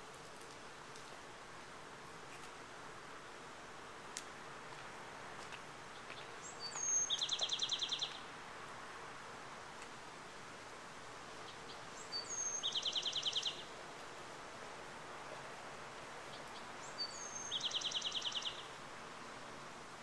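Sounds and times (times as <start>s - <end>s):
outdoor background hiss: 0.0s - 20.0s
songbird whistle and trill: 6.4s - 8.2s, 11.4s - 13.7s, 16.3s - 18.7s.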